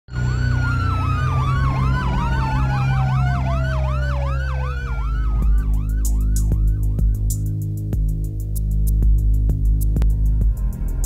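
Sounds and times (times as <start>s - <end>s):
falling tone: 0.1s - 7.2s
police siren wailing: 0.1s - 7.5s
low steady drone: 0.1s - 11.0s.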